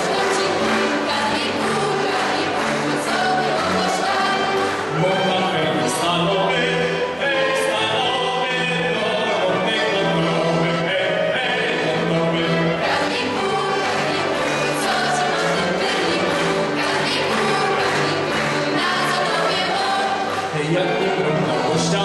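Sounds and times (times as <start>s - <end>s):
folk group singing in chorus: 0.0s - 22.0s.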